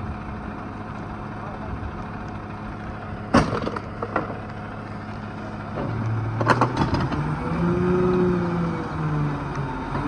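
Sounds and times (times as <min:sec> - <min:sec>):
garbage truck engine idling: 0:00.0 - 0:07.2.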